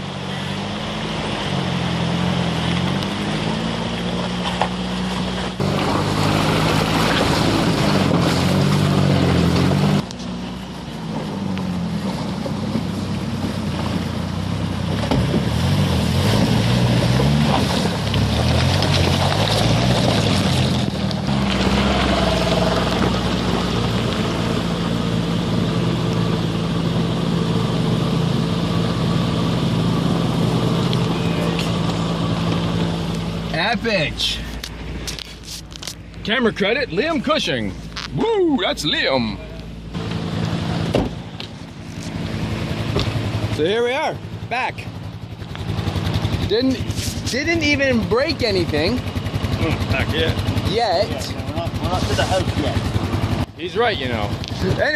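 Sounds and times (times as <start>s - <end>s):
water splashing around wheels: 0.0s - 27.0s
pickup engine revving: 0.0s - 54.9s.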